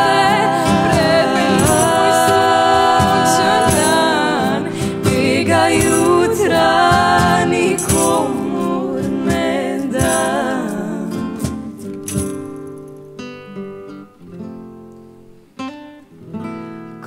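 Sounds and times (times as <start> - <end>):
instrumental music with beat: 0.0 - 10.5
person singing long notes: 0.0 - 11.9.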